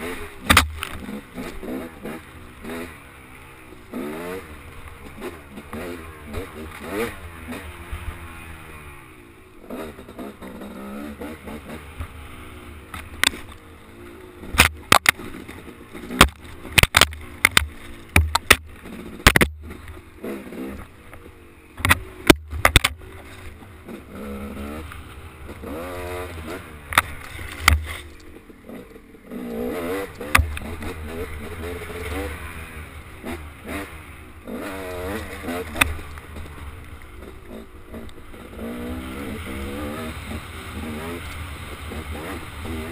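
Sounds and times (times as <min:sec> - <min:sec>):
dirt bike engine revving: 0:00.0 - 0:42.9
sharp knocks and clatter: 0:00.4 - 0:01.6, 0:14.4 - 0:20.0, 0:21.8 - 0:23.5, 0:26.9 - 0:28.2.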